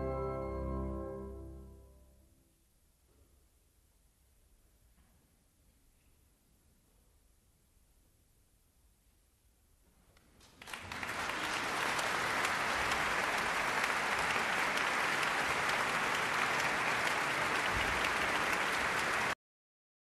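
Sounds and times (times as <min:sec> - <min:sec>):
audience applause: 0:10.4 - 0:19.4.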